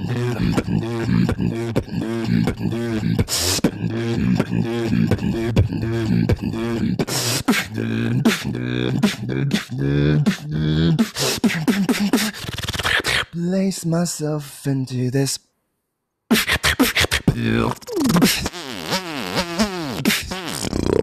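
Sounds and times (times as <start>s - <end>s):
beatboxing bass line: 0.0s - 13.4s, 16.3s - 21.0s
beatboxed snare hits: 16.3s - 17.4s, 18.1s - 21.0s.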